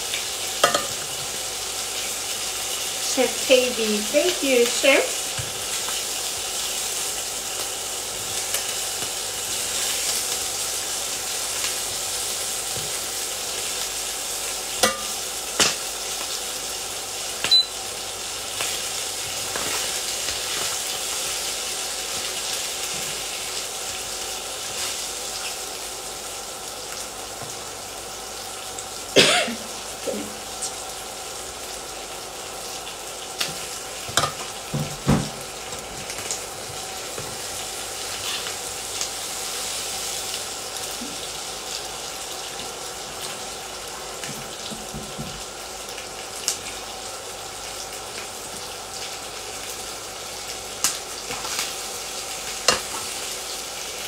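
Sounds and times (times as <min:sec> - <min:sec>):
wings sizzling in oil: 0:00.0 - 0:54.0
metal tongs clinking on pan: 0:00.6 - 0:01.0, 0:14.8 - 0:15.8.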